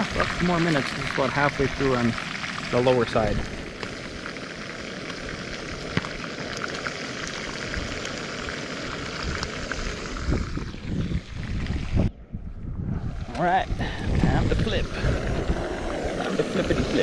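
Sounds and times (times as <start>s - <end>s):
fish sizzling in a pan: 0.0s - 11.9s
wind rumble on microphone: 9.2s - 17.0s.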